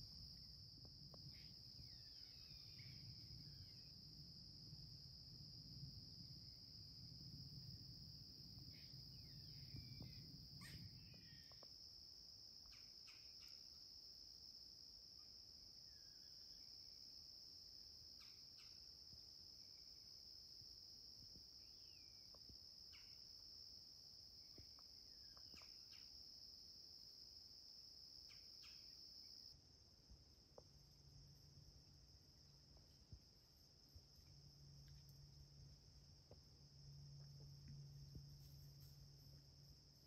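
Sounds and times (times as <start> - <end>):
insect chorus drone: 0.0 - 40.0
short insect chirps: 1.2 - 4.1, 8.5 - 14.1, 18.0 - 20.1, 21.6 - 29.5.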